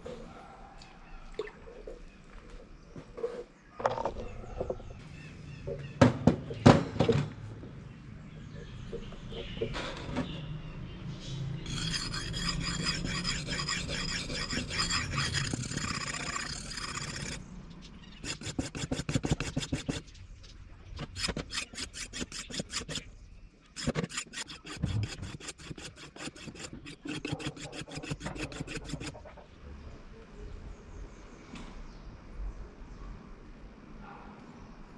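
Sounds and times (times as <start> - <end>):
wooden block rasping on abrasive: 11.7 - 17.4, 18.2 - 20.1, 21.0 - 23.1, 23.8 - 29.3.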